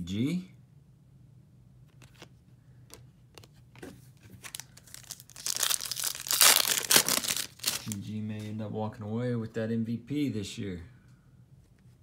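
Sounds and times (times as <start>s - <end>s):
foil wrapper crinkling and tearing: 4.4s - 8.0s.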